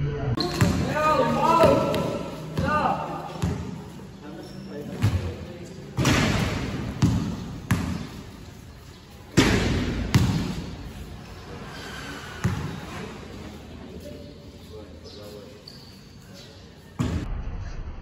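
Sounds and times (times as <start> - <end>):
basketball bouncing in a gym: 0.4 - 11.1, 12.3 - 13.0.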